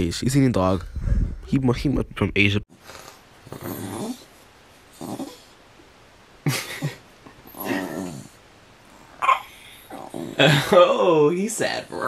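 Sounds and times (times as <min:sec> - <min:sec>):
small dog grumbling and whining: 0:03.4 - 0:04.3, 0:04.9 - 0:05.6, 0:07.4 - 0:08.4, 0:09.2 - 0:10.6.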